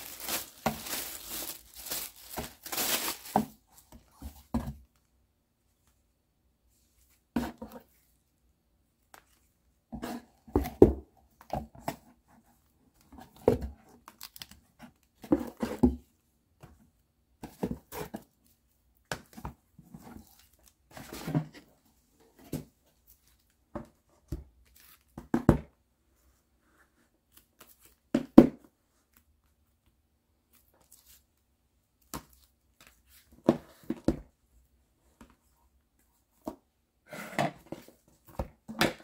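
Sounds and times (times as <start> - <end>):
plastic wrap crinkling: 0.0 - 3.8.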